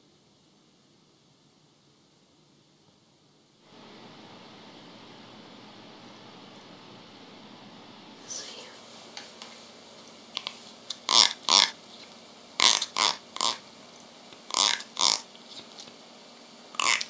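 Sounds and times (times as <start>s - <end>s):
comb teeth strummed: 10.4s - 11.8s, 12.6s - 13.6s, 14.5s - 15.3s, 16.8s - 17.0s.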